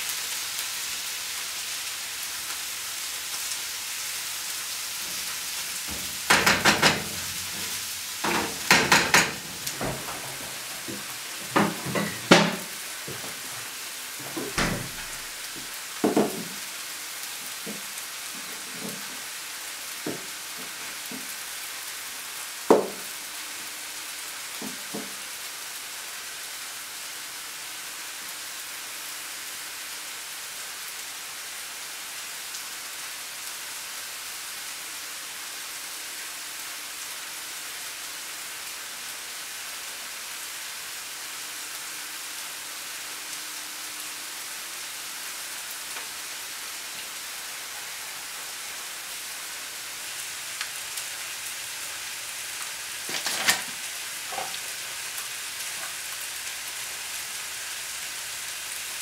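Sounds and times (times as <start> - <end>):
food sizzling in a pan: 0.0 - 59.0
knocks: 5.9 - 13.3, 14.2 - 15.2, 16.0 - 16.6, 22.7 - 23.0.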